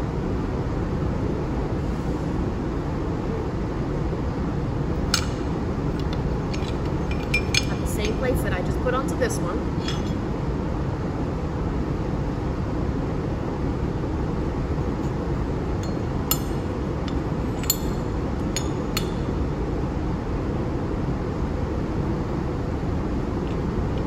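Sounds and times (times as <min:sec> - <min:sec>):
low room rumble: 0:00.0 - 0:24.0
steel plates clinking: 0:05.1 - 0:08.6, 0:09.7 - 0:10.3, 0:15.8 - 0:19.4.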